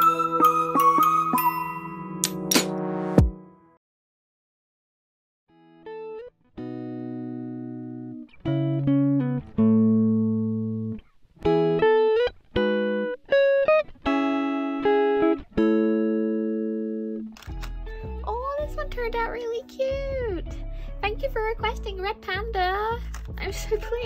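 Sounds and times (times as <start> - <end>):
plucked guitar slow tune: 5.6 - 21.1.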